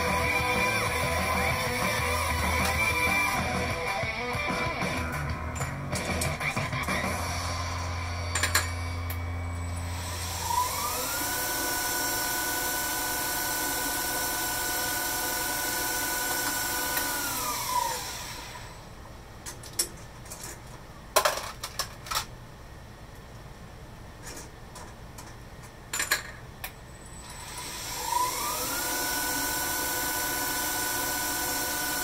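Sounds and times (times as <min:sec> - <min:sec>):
lathe spindle whining: 0:00.0 - 0:03.7, 0:06.4 - 0:18.9, 0:27.2 - 0:32.0.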